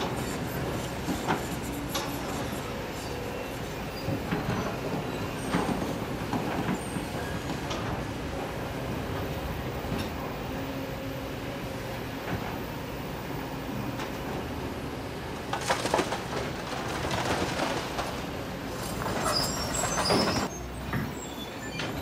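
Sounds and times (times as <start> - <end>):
rocks and gravel clattering: 15.3 - 20.5.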